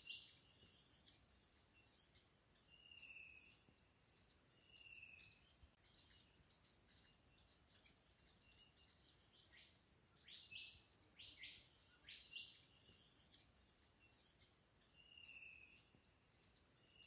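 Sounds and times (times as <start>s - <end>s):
faint birdsong: 0.0s - 17.0s
soft background hiss: 0.0s - 17.0s.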